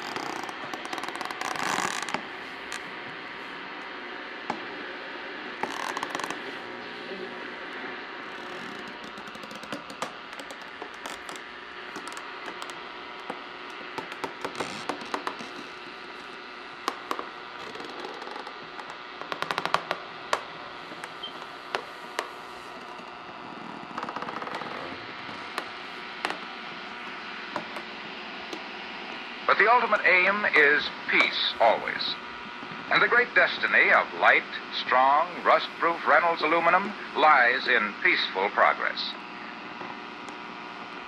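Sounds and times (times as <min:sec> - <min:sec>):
radio hissing and humming: 0:00.0 - 0:41.0
radio knob clicks and crackles: 0:08.4 - 0:15.9.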